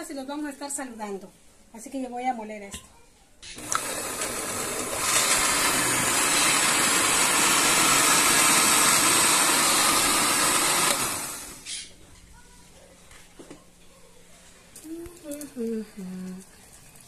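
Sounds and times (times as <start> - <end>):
electric blender running: 3.6 - 11.7.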